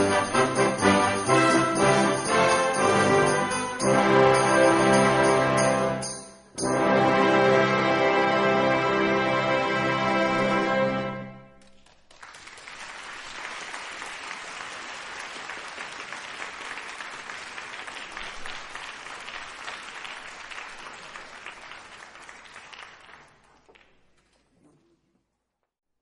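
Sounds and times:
brass ensemble final chord: 0.0 - 6.0, 6.6 - 11.5
audience applauding: 11.6 - 24.9.

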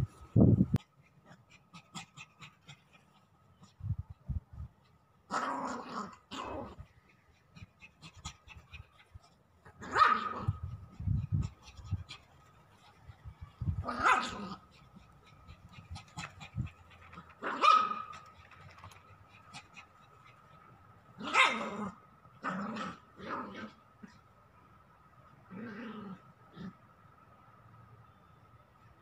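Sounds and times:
small dog barking: 9.7 - 10.7, 13.8 - 16.7, 17.4 - 18.3, 21.2 - 23.7.

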